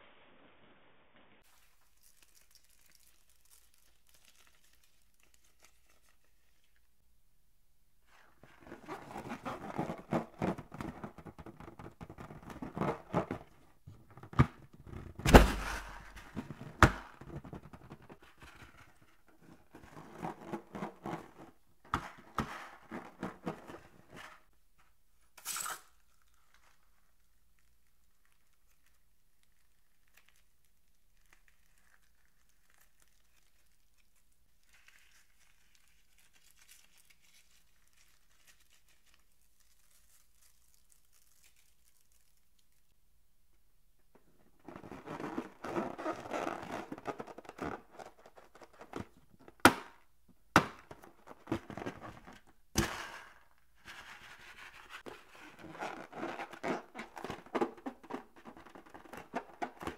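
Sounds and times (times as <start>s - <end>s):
faint rustle of beads: 1.4s - 6.8s, 25.6s - 42.9s
balloons rubbing and crinkling: 8.0s - 24.5s, 44.5s - 49.4s, 53.6s - 59.9s.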